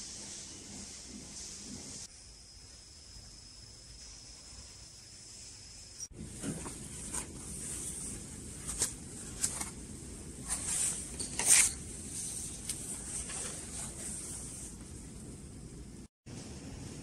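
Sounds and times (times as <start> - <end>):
faint high tone with hiss: 2.1 - 6.1
paper pages rustling: 6.4 - 9.8.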